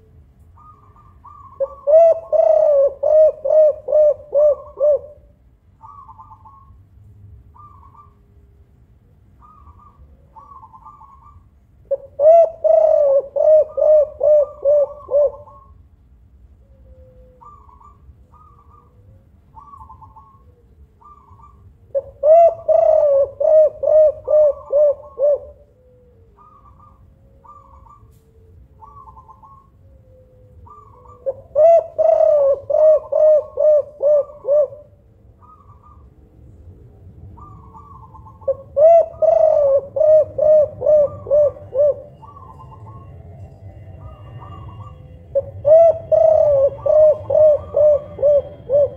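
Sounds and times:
dove cooing: 0.0 - 6.8, 7.5 - 15.8, 16.6 - 36.1, 37.3 - 48.9.

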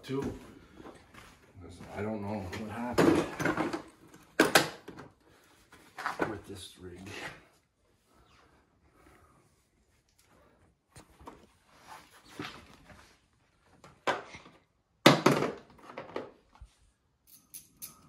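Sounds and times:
metal parts scraping and clinking: 17.2 - 18.0.

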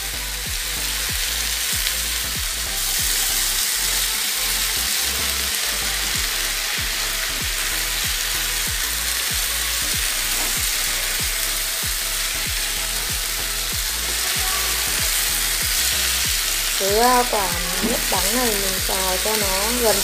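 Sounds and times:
vegetables sizzling in a pan: 0.0 - 20.0.

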